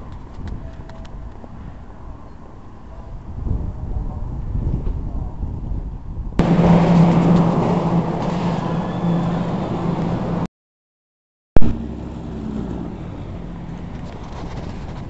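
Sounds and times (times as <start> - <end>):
wind on microphone: 0.0 - 10.4, 13.8 - 15.0
car traffic: 6.4 - 10.5, 11.6 - 15.0
low store hum: 6.4 - 10.5
sharp pop: 11.6 - 11.8.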